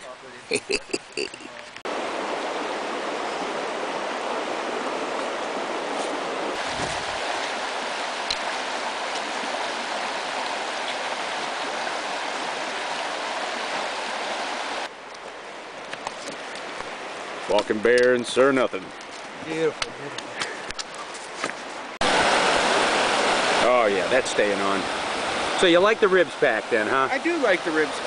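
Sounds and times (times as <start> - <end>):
river rapids roaring: 0.9 - 14.9, 22.0 - 28.0.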